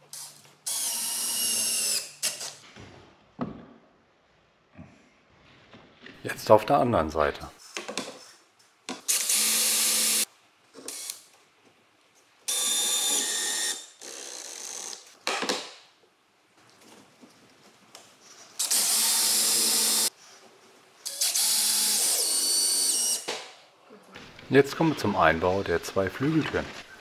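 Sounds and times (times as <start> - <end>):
cordless drill whining: 18.6 - 20.1.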